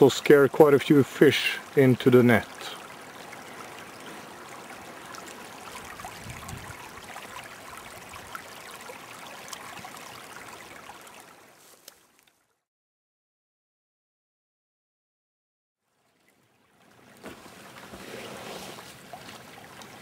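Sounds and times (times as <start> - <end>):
stream running over rocks: 0.0 - 12.7, 15.8 - 20.0.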